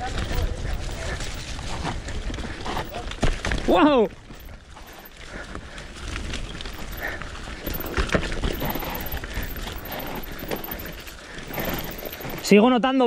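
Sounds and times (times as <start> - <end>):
wind rumble on microphone: 0.0 - 4.8
tyres through mud: 0.0 - 12.6
bike knocking and rattling: 0.0 - 12.7.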